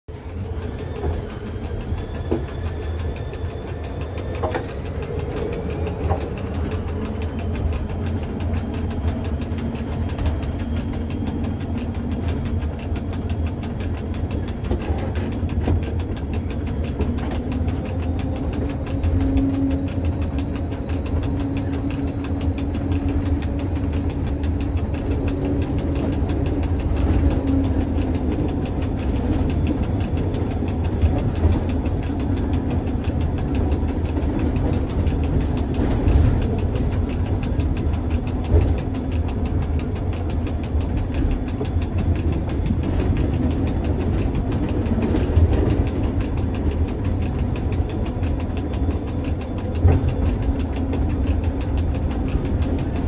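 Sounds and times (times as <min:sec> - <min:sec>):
cog gearing clatter: 0:00.1 - 0:53.0
railcar rumble: 0:00.1 - 0:53.0.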